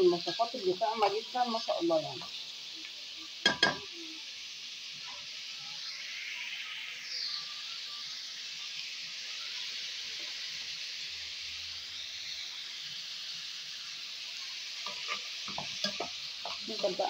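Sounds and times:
onions sizzling in hot oil: 0.0 - 17.0
spoon scraping a metal pot: 14.8 - 17.0.

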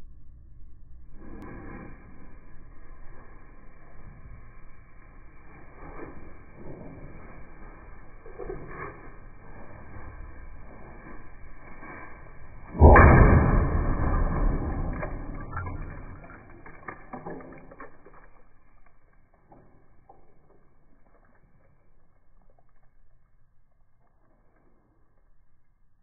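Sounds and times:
cannon blast: 12.7 - 16.7
debris ticking and tapping: 14.0 - 23.4.

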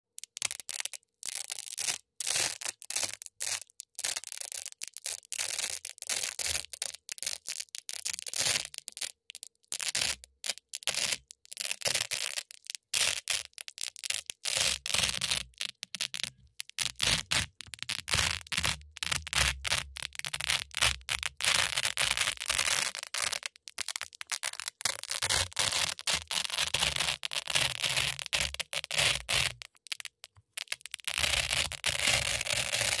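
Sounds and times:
velcro ripping apart: 9.9 - 33.0.

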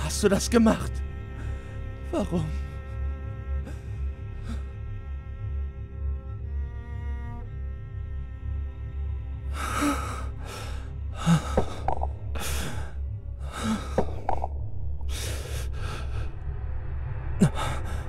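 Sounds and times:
man sobbing: 0.0 - 2.9, 9.6 - 12.9, 13.5 - 14.2, 17.4 - 18.0
low droning music: 0.0 - 18.0.

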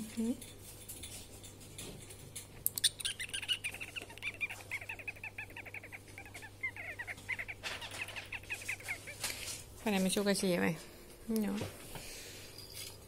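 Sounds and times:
ferret chirping: 2.7 - 9.6.

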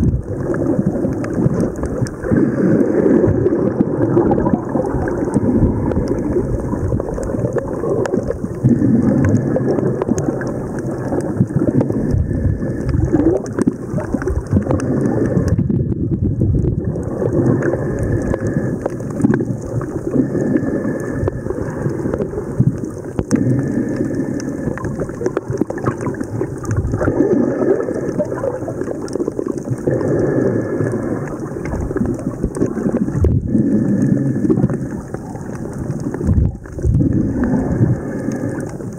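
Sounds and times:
muffled underwater rumble: 0.0 - 38.9.

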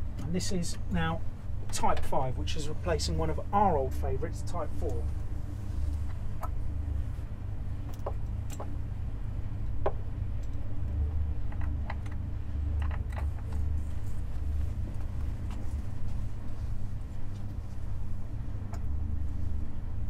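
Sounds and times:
low room rumble: 0.0 - 20.0
speaker cable clicks and rattles: 7.8 - 8.8, 9.6 - 14.0.

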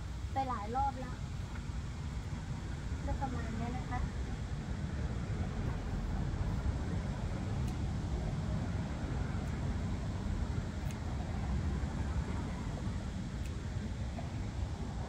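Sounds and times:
low outdoor rumble: 0.0 - 15.0
garden scissors snipping stems: 10.8 - 11.1, 13.4 - 13.6.

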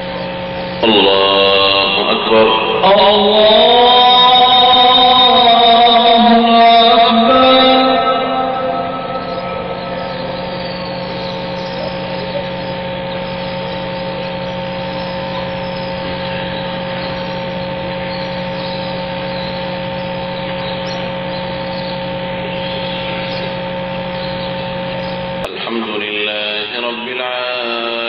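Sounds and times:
fixed electronic tones: 0.0 - 21.7
low electrical buzz: 0.0 - 28.0.

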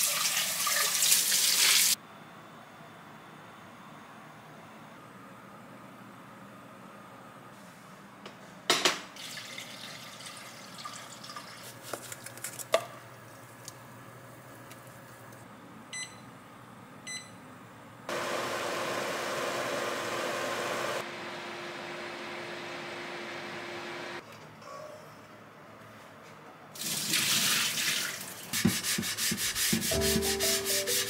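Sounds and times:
powder shaken from plastic shaker: 11.6 - 12.7
heater humming and rushing: 18.1 - 24.2.

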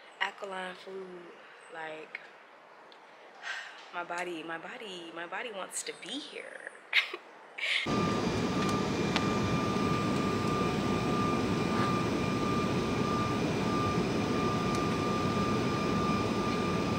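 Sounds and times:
loud mechanical drone: 7.9 - 16.9
thin high whine: 7.9 - 16.9.

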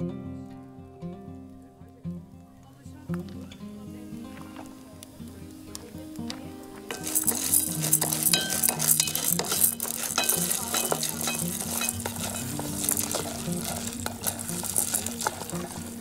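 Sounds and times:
kernels scraping in metal pot: 6.8 - 16.0.

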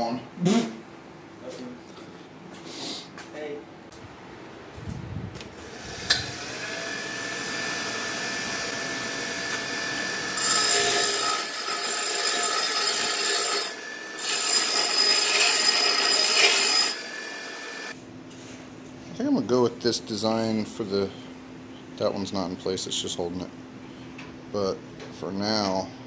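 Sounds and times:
grinder motor whine: 5.7 - 18.0
steel grinding on wheel: 9.4 - 17.9.

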